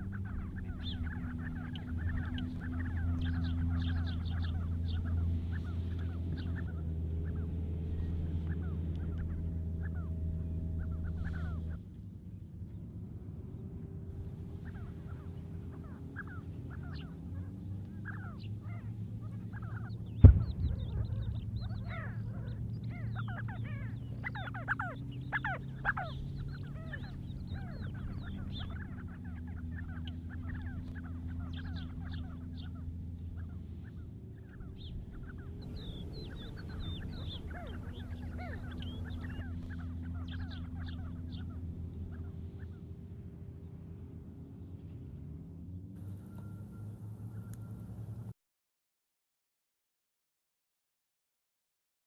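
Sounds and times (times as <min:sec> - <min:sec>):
sandgrouse flock chirping: 0:00.0 - 0:12.4, 0:14.2 - 0:43.1, 0:46.0 - 0:48.3
steady low hum: 0:00.0 - 0:48.3
steady low rumble: 0:00.0 - 0:48.3
loud thump: 0:20.2 - 0:21.7.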